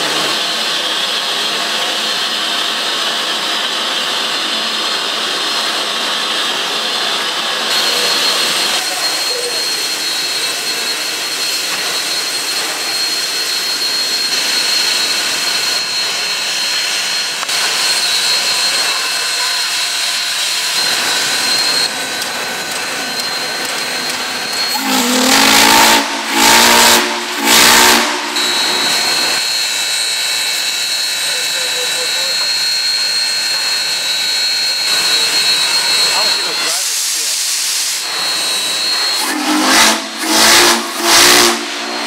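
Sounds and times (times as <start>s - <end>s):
steam locomotive hissing: 0.0s - 42.0s
steam whistle blasts: 23.1s - 42.0s.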